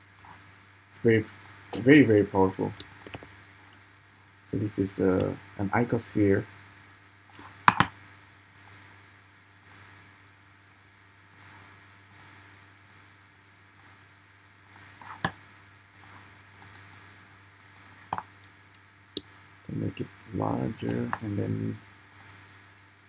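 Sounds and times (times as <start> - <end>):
faint steady hum: 0.0 - 23.0
computer mouse and keyboard clicks: 2.7 - 3.3, 11.4 - 12.3, 16.0 - 17.0.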